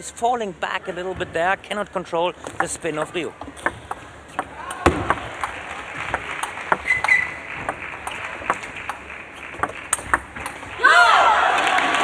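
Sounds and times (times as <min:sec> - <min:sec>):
table tennis ball clicking: 0:02.4 - 0:10.8.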